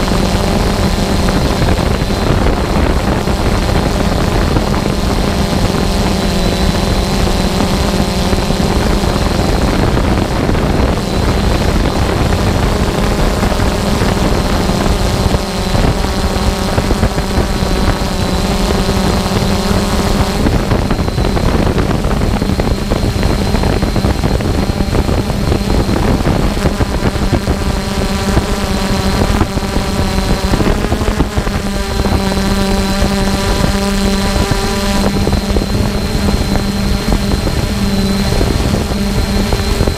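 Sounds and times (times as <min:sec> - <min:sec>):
drone motors buzzing: 0:00.0 - 0:39.9
high whine: 0:00.0 - 0:39.9.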